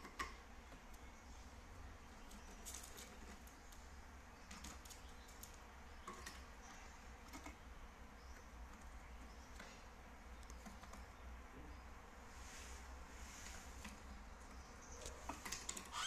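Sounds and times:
beaks and claws tapping on cardboard: 0.0 - 11.8.

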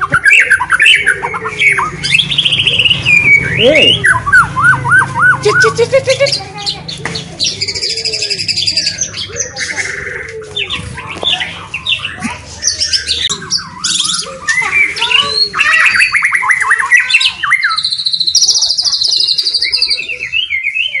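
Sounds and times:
songbird singing whistles and trills: 0.0 - 5.8, 10.6 - 21.0.

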